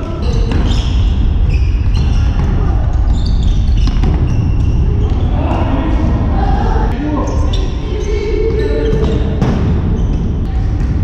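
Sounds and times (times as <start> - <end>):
ball kicked and bouncing: 1.9 - 5.2
steady low rumble: 4.7 - 7.2.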